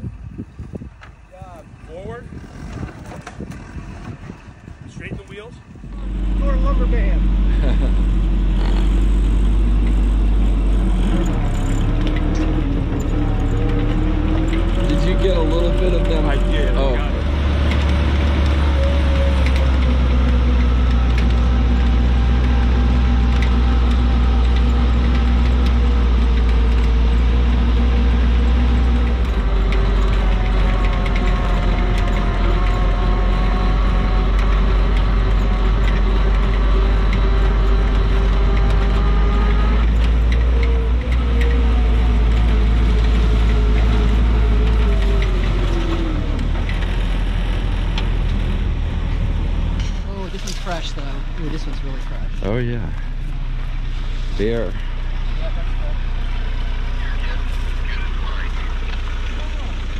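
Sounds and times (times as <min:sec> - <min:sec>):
jeep engine running under load: 0:00.0 - 0:59.9.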